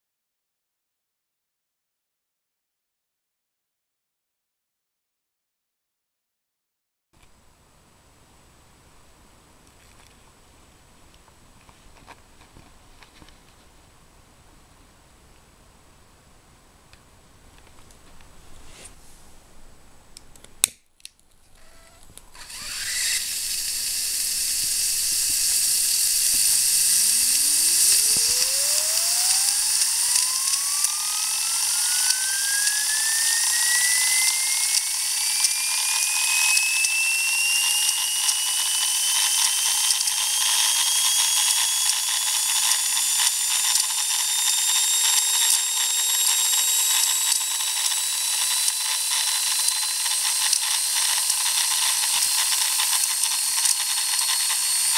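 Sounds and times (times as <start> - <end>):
turbine whine rising: 21.6 - 54.9
steam hiss with crackling rattle: 22.7 - 54.9
sharp click: 34.2 - 54.9.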